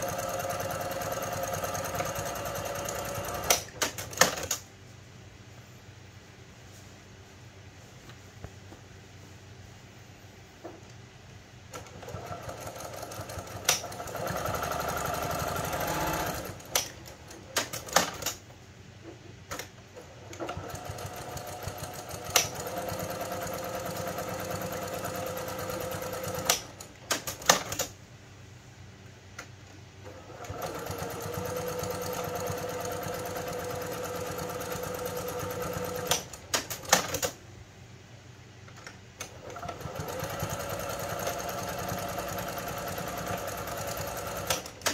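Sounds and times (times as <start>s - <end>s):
sewing machine sharp clicks: 0.0s - 4.6s, 11.8s - 18.4s, 20.4s - 27.9s, 30.3s - 37.4s, 39.2s - 44.9s
sewing machine stitching: 0.0s - 4.6s, 11.8s - 18.4s, 20.0s - 27.9s, 30.0s - 37.3s, 39.2s - 44.9s.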